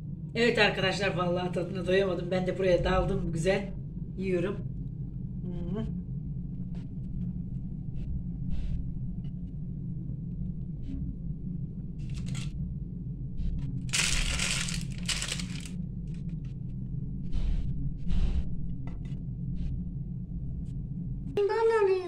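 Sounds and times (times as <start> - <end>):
low hum: 0.0 - 21.5
paper rustling and crinkling: 12.1 - 12.5, 13.9 - 15.7.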